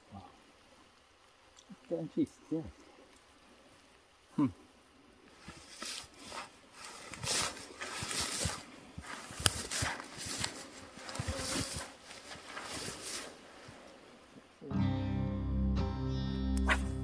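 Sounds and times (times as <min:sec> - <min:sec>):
brushing through tall grass: 0:05.3 - 0:14.3.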